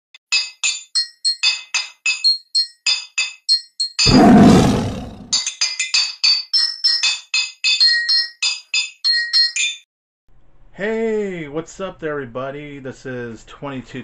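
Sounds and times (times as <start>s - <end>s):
big cat roar: 4.1s - 5.4s.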